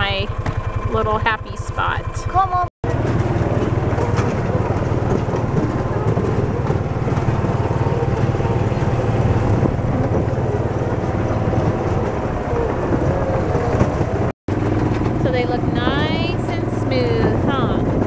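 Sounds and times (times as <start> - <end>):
utility vehicle engine droning: 0.0 - 18.0.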